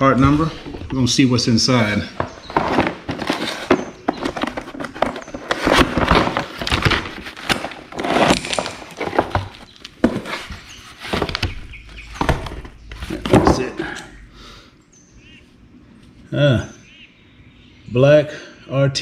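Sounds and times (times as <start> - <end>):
cardboard and packaging rustling: 0.0 - 14.0.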